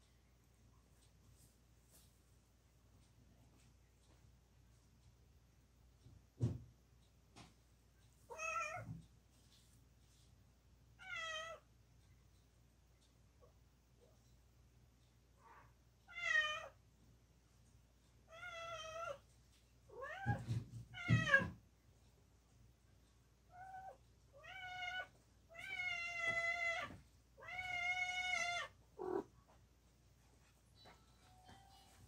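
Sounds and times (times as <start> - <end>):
cat meowing: 23.5 - 29.3.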